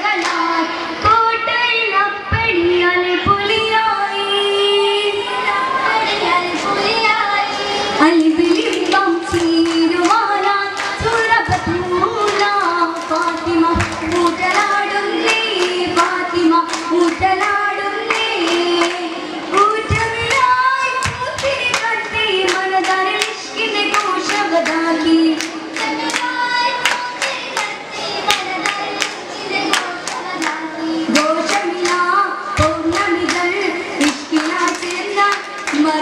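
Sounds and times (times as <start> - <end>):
rhythmic hand claps: 0.0 - 0.8, 8.1 - 36.0
girls singing in chorus: 0.0 - 36.0.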